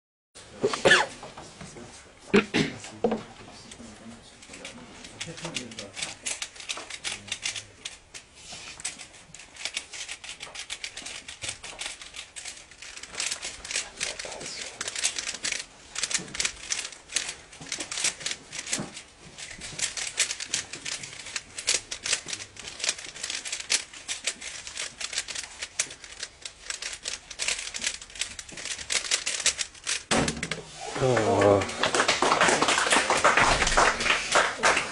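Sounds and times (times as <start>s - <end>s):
puzzle cube clicking: 4.4s - 30.6s.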